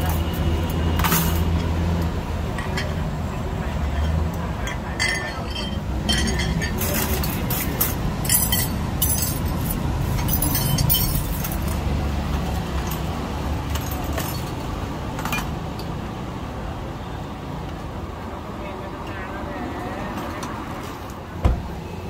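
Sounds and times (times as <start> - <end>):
road traffic rumble: 0.0 - 22.0
glassware and utensils clinking: 3.9 - 11.9, 12.8 - 16.0.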